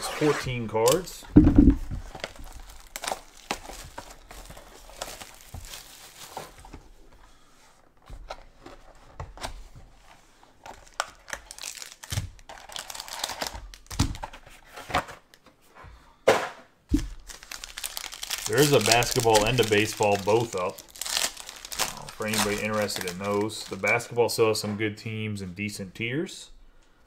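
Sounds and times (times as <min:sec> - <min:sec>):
cardboard box thumps: 0:01.4 - 0:02.1
plastic wrap crinkling and tearing: 0:01.9 - 0:07.0, 0:10.6 - 0:14.7, 0:16.9 - 0:24.3.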